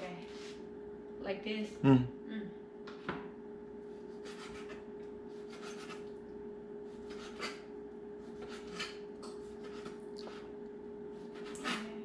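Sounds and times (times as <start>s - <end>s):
knife sawing through raw meat: 4.2s - 4.8s, 5.5s - 6.0s, 7.0s - 7.7s, 8.3s - 9.0s, 11.3s - 12.0s.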